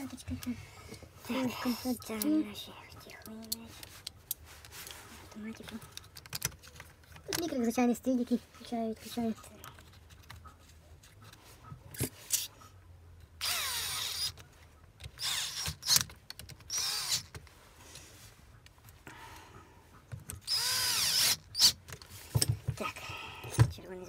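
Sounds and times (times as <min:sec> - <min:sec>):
electric drill whirring: 0:13.4 - 0:14.4, 0:15.2 - 0:16.0, 0:16.7 - 0:17.4, 0:20.4 - 0:21.8.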